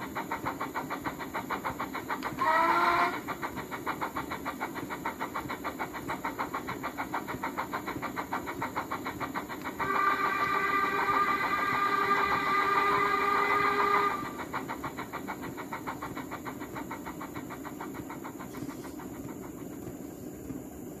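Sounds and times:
steam exhaust beats: 0.0s - 21.0s
model train whistle: 2.4s - 3.2s, 9.8s - 14.3s.

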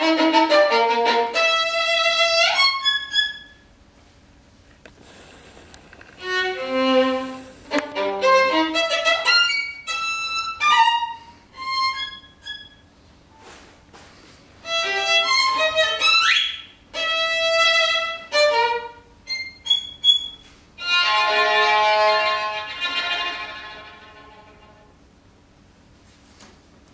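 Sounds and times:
solo violin playing: 0.0s - 3.6s, 6.2s - 12.8s, 14.6s - 20.2s, 20.8s - 25.0s.

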